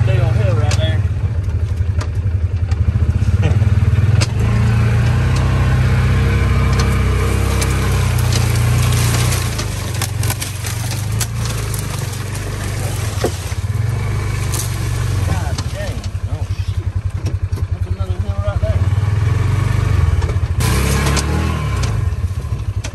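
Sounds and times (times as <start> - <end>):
vehicle engine running: 0.0 - 22.9
sharp clicks and knocks: 4.1 - 4.4, 6.6 - 17.7.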